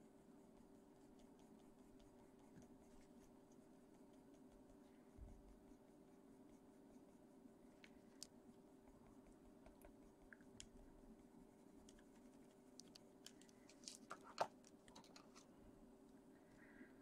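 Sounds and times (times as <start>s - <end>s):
pencil scratching on paper: 0.0s - 7.8s, 8.4s - 13.2s
low steady hum: 0.0s - 17.0s
paper rustling: 12.8s - 15.5s.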